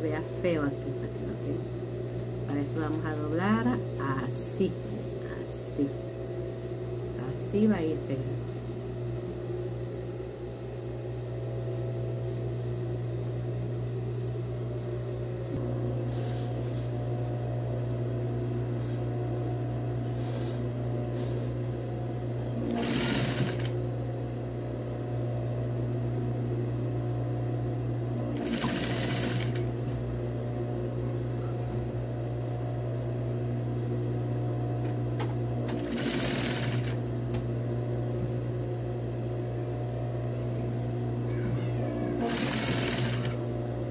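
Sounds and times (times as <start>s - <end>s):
sewing machine motor humming: 22.4s - 23.8s, 28.2s - 29.8s, 35.6s - 37.1s, 42.1s - 43.6s.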